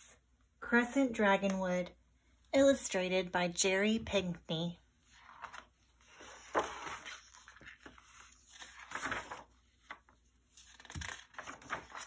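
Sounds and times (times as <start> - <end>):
book pages rustling: 5.1 - 12.0.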